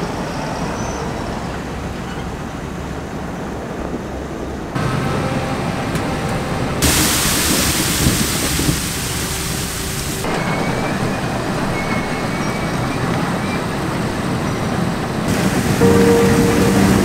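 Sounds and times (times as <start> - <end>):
conveyors running: 10.2 - 17.0.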